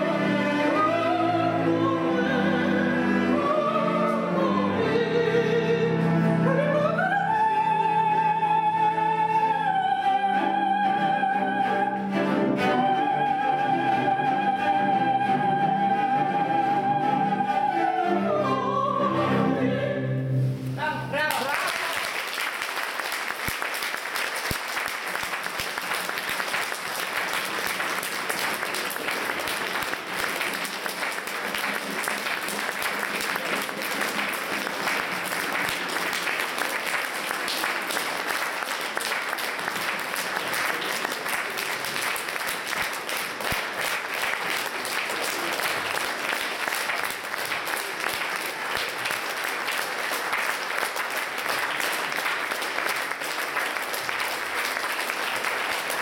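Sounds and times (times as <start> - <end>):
audience applause: 21.2 - 56.0.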